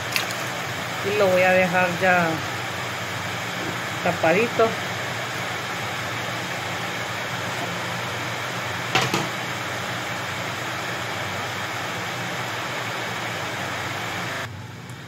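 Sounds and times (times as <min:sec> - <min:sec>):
pot of water boiling: 0:00.0 - 0:14.5.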